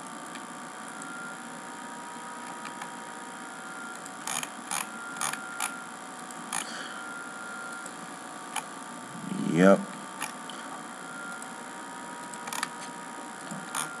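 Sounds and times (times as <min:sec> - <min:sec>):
computer mouse clicking: 0:12.2 - 0:12.7.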